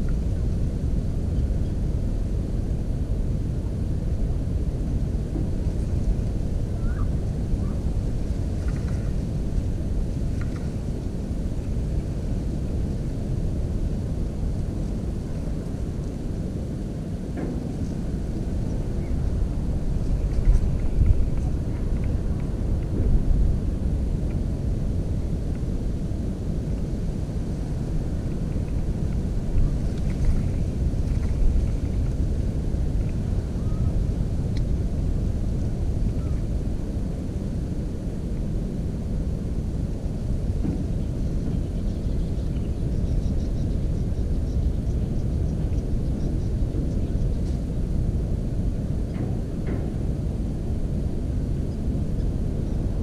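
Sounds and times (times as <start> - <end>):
wind buffeting microphone: 0.0 - 53.0
faint high ticks and calls: 6.7 - 7.8, 8.6 - 9.1, 36.1 - 36.5, 40.6 - 47.6.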